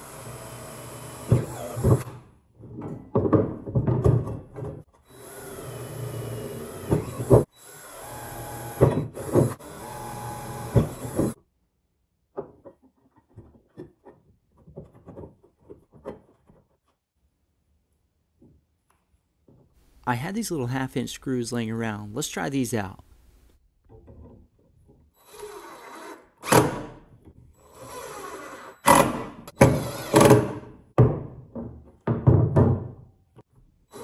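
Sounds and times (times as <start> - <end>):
knocks and clatter: 1.9 - 4.9
cordless drill boring through steel: 5.1 - 11.4.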